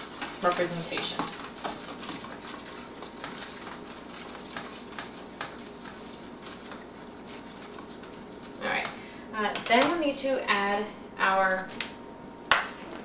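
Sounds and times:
spoon stirring in plastic container: 0:00.0 - 0:08.6.

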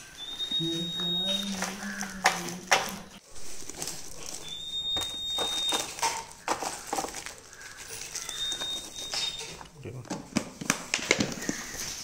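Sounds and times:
thin high tone: 0:00.0 - 0:06.2
plastic packets crinkling: 0:00.0 - 0:12.0.

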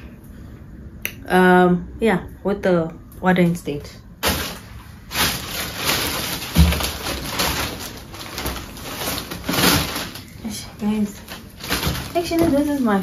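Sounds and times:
plastic packaging crinkling: 0:04.2 - 0:13.0.

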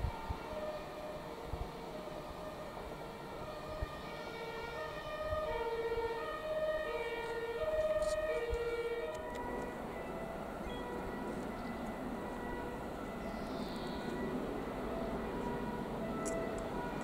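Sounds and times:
two-tone siren: 0:00.0 - 0:17.0.

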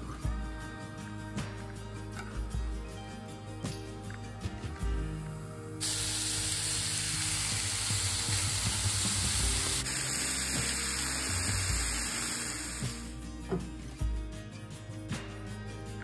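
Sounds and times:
meat sizzling on a griddle: 0:05.8 - 0:13.1.

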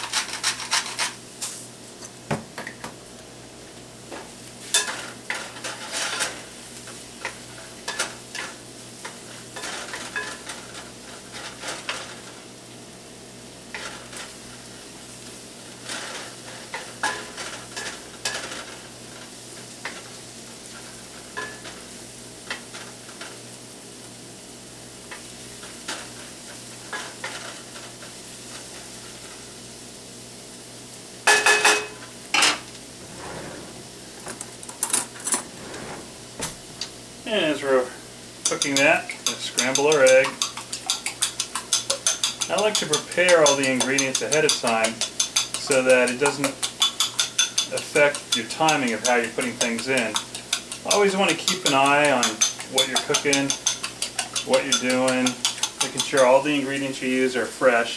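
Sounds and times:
vegetables sizzling in frying pan: 0:00.0 - 0:33.1, 0:33.7 - 0:57.9
wooden spatula scraping pan: 0:32.6 - 0:37.1.

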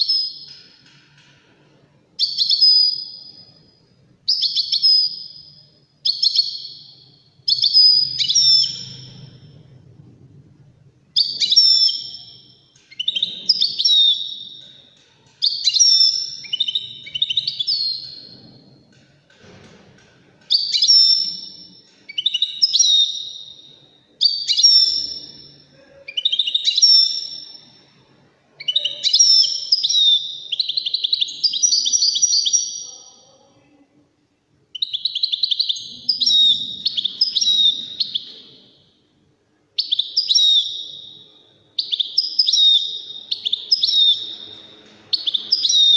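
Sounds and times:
goldfinch twittering song: 0:06.0 - 0:09.4, 0:15.4 - 0:18.3, 0:39.8 - 0:41.2, 0:41.8 - 0:45.9.

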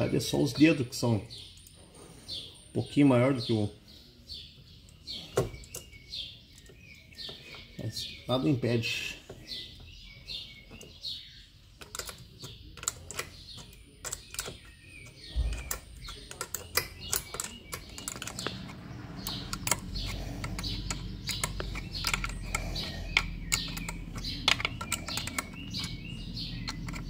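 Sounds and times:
birds chirping: 0:00.0 - 0:27.0
small metallic clicks and taps: 0:11.8 - 0:27.0.

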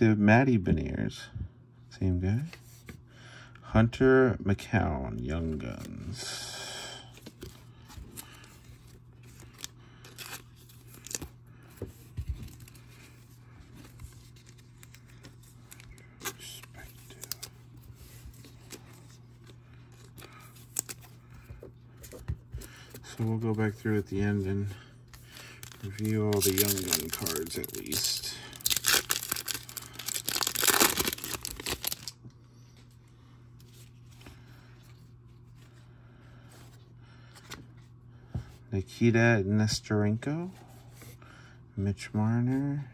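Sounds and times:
faint low hum: 0:00.0 - 0:42.9
wrapper crinkling being torn: 0:25.4 - 0:32.2.

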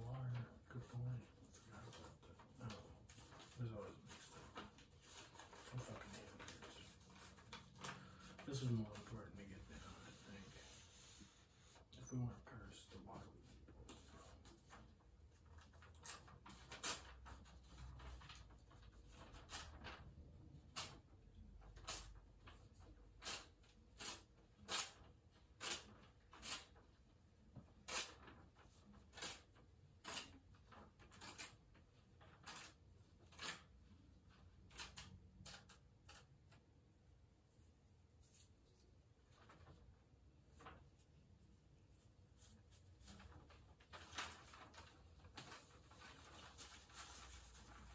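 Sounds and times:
paper rustling and tearing: 0:01.7 - 0:11.8, 0:15.8 - 0:21.0, 0:42.4 - 0:47.9.

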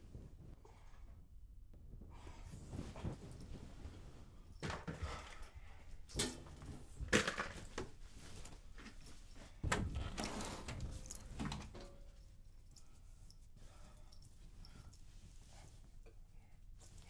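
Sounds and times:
cloth rustling: 0:06.7 - 0:09.6.

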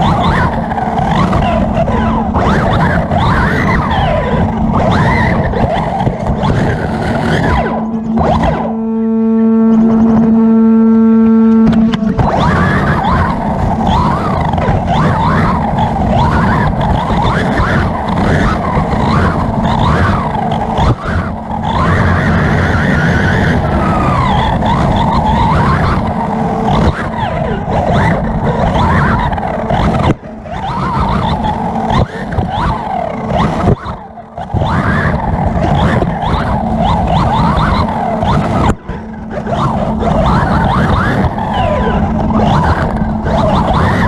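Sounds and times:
electric motor whining: 0:00.0 - 0:44.0.

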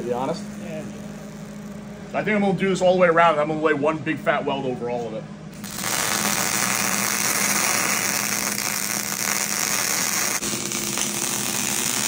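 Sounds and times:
welding arc hissing: 0:00.0 - 0:02.1, 0:05.5 - 0:12.0.

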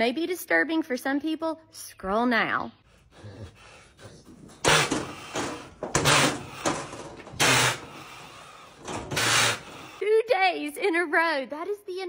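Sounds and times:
cow breathing: 0:02.8 - 0:10.0
cow blowing through nose: 0:03.0 - 0:10.0.

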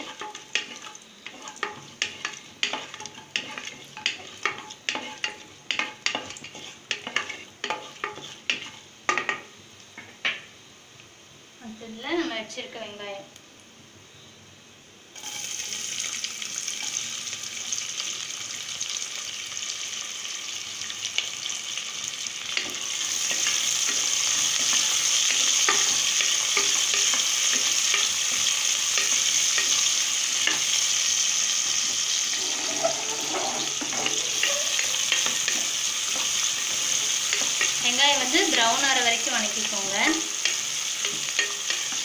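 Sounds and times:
utensil scraping and tapping pot: 0:00.0 - 0:10.4, 0:22.6 - 0:30.8, 0:31.8 - 0:38.9, 0:40.0 - 0:42.0
onions sizzling in oil: 0:00.0 - 0:42.0.

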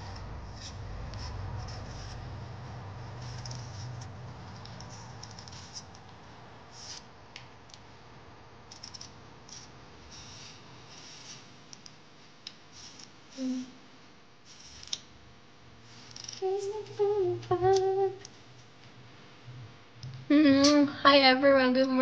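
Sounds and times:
woman humming: 0:13.4 - 0:13.8, 0:16.4 - 0:18.3, 0:20.2 - 0:21.2.

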